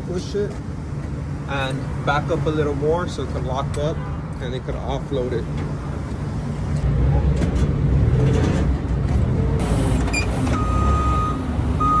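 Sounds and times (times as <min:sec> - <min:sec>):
forklift engine rumbling: 0:05.4 - 0:12.0.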